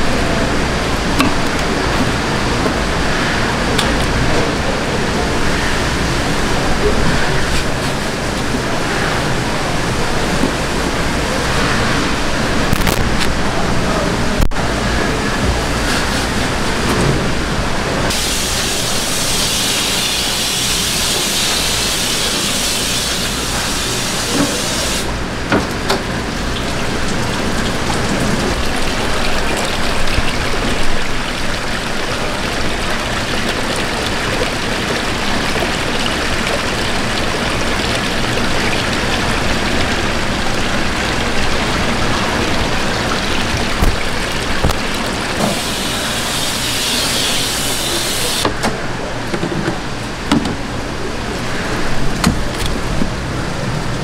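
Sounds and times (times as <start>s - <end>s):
water splashing in fish tanks: 0.0s - 54.0s.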